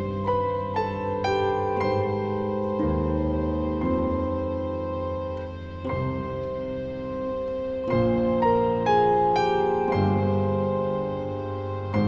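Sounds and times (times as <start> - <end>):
slow melody of sustained notes: 0.0 - 12.0.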